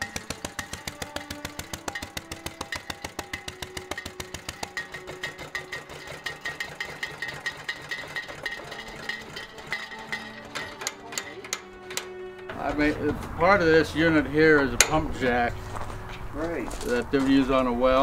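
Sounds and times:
single-cylinder engine knocking: 0:00.0 - 0:12.1.

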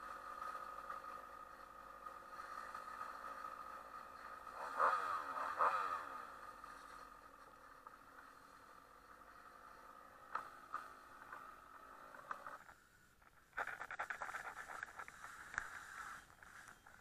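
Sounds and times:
engine revving: 0:00.0 - 0:12.7.

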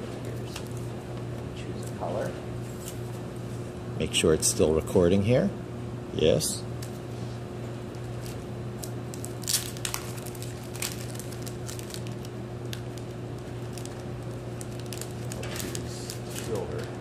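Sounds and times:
steady low hum: 0:00.0 - 0:17.0
plastic packs rustling and clicking: 0:08.2 - 0:17.0.

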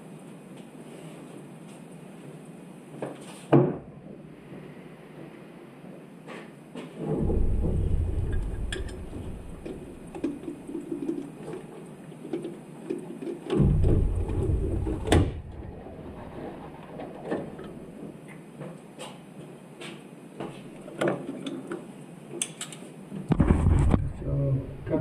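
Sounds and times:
heavy low thump: 0:07.0 - 0:10.4, 0:13.6 - 0:17.0.

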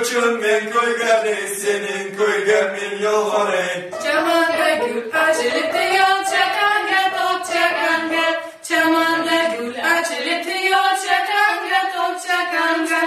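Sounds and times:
group of voices singing: 0:00.0 - 0:13.0
upright piano accompaniment: 0:03.8 - 0:08.3.

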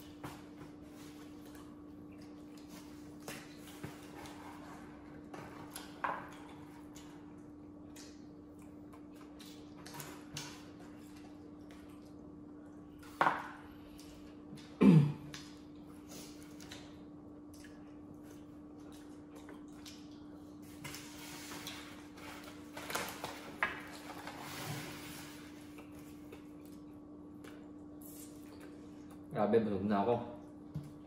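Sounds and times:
chewing mouth sounds: 0:13.9 - 0:20.6.

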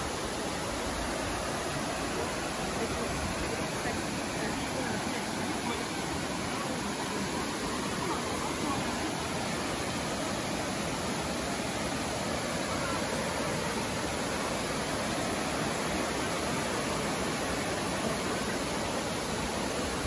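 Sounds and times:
water rushing over rock: 0:00.0 - 0:20.0.

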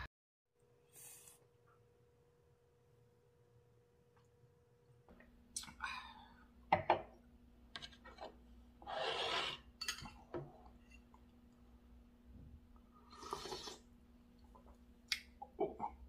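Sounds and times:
metal spoon clinking ceramic bowl: 0:09.8 - 0:10.2.

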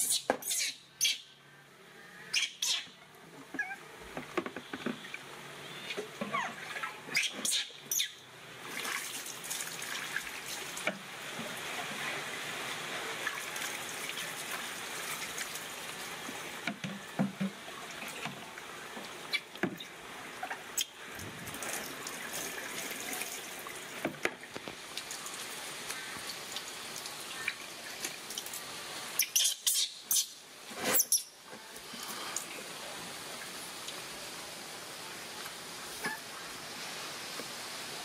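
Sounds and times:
monkey squeaking: 0:00.0 - 0:01.2, 0:02.3 - 0:02.9, 0:03.6 - 0:03.8, 0:06.3 - 0:08.2, 0:29.2 - 0:30.3, 0:31.0 - 0:31.3
water splashing: 0:03.4 - 0:29.3.

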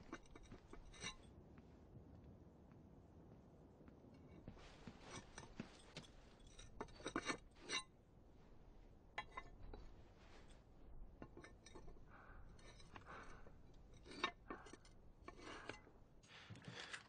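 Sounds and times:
boots clinking on slate tiles: 0:04.4 - 0:07.9, 0:11.2 - 0:17.0.

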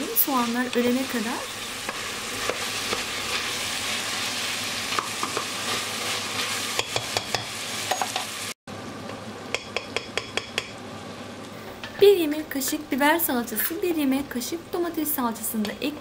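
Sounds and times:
beef and onions sizzling: 0:00.0 - 0:08.6.

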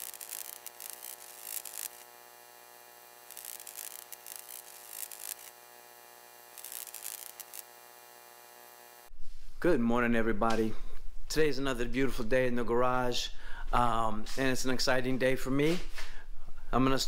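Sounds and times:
bursts of hiss: 0:00.0 - 0:09.0
steady humming tone: 0:00.0 - 0:09.1.

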